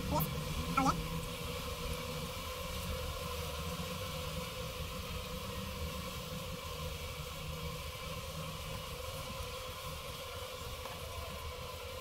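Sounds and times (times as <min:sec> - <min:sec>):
bees buzzing: 0:00.0 - 0:01.8.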